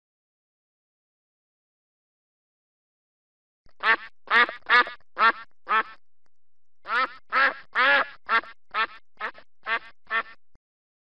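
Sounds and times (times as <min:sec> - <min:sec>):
duck quacking: 0:03.8 - 0:06.0, 0:06.9 - 0:10.4.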